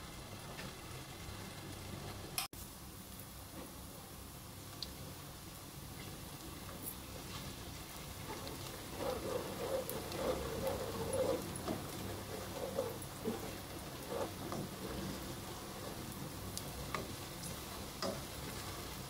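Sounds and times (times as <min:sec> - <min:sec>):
onions sizzling in oil: 0:00.0 - 0:19.0
spoon scraping a pot: 0:08.3 - 0:16.1.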